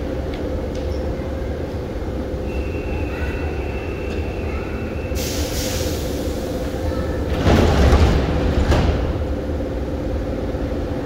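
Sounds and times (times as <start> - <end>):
train equipment humming: 0.0 - 11.0
loud hiss of closing doors: 4.1 - 9.3.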